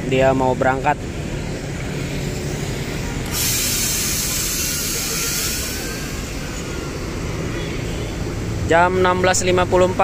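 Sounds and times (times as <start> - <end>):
diesel engine idling: 1.0 - 10.0
compressed air hiss: 3.2 - 7.3.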